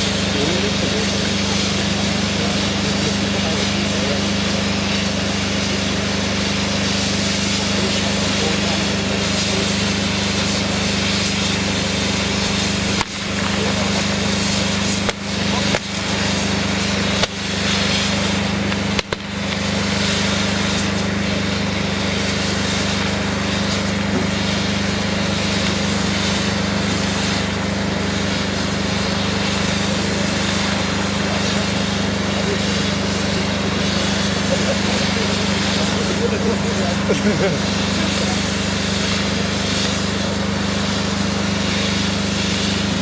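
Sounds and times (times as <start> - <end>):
fireworks hissing rush: 0.0 - 43.0
sharp firework cracks: 11.2 - 21.3.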